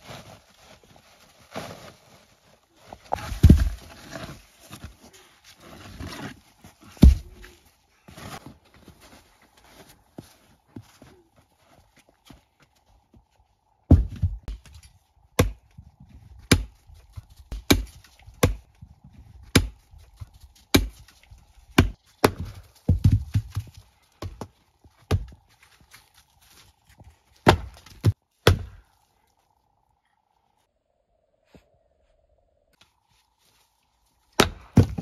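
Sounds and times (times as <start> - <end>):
axe splitting firewood: 3.1 - 4.9, 5.6 - 7.5, 13.9 - 15.7, 16.4 - 16.8, 17.5 - 18.6, 19.4 - 19.8, 20.7 - 25.4, 27.4 - 28.9, 34.4 - 35.0.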